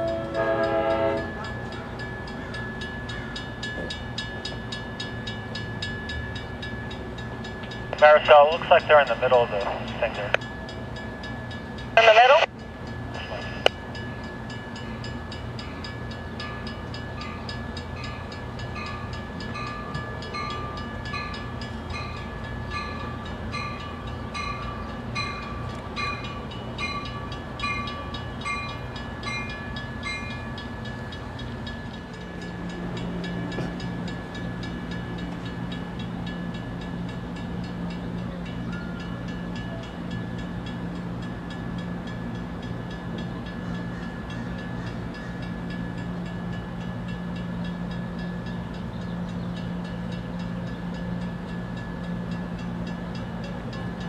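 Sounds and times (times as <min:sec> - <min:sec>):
railroad bell ringing: 0:00.0 - 0:54.0
train engine rumbling: 0:00.0 - 0:54.0.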